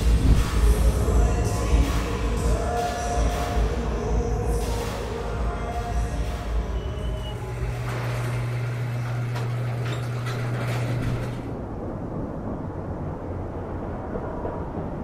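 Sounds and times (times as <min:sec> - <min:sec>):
rushing whooshes: 0:00.0 - 0:05.3
deep rumble: 0:00.0 - 0:15.0
low steady hum: 0:00.0 - 0:15.0.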